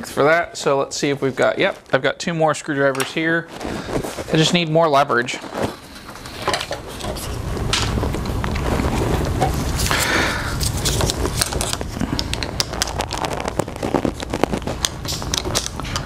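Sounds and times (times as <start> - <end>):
steady low rumble: 5.7 - 16.0.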